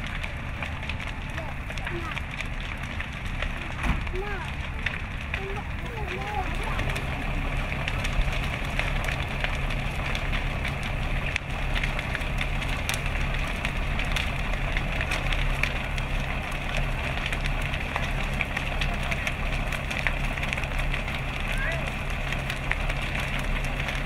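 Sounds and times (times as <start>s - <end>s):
fire crackling and popping: 0.0s - 24.0s
fire truck engine running: 0.0s - 24.0s.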